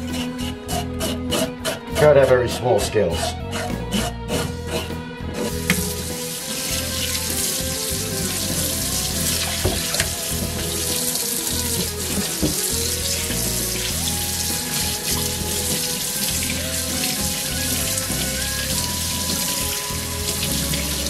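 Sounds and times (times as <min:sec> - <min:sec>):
background music: 0:00.0 - 0:21.0
tap water running into sink: 0:05.4 - 0:21.0.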